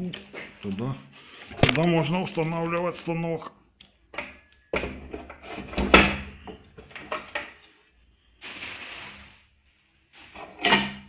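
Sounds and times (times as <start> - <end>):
metal parts knocking and clunking: 4.1 - 7.6.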